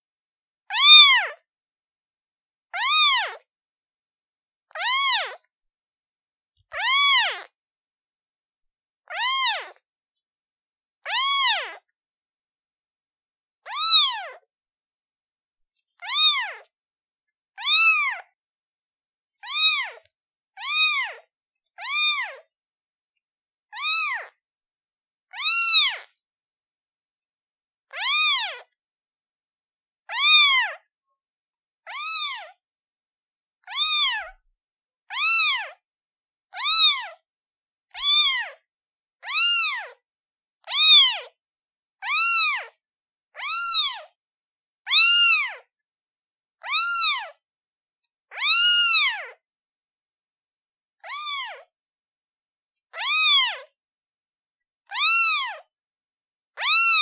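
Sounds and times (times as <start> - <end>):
kitten meowing: 0.7 - 1.4, 2.8 - 3.4, 4.8 - 5.4, 6.7 - 7.5, 9.1 - 9.8, 11.1 - 11.8, 13.6 - 14.4, 16.0 - 16.7, 17.6 - 18.3, 19.4 - 21.2, 21.8 - 22.4, 23.7 - 24.4, 25.3 - 26.1, 27.9 - 28.7, 30.1 - 30.9, 31.9 - 32.6, 33.6 - 34.4, 35.1 - 35.8, 36.6 - 37.2, 38.0 - 38.6, 39.2 - 40.0, 40.6 - 41.3, 42.0 - 42.7, 43.4 - 44.2, 44.9 - 45.7, 46.6 - 47.4, 48.3 - 49.4, 51.0 - 51.7, 52.9 - 53.7, 54.9 - 55.7, 56.6 - 57.0.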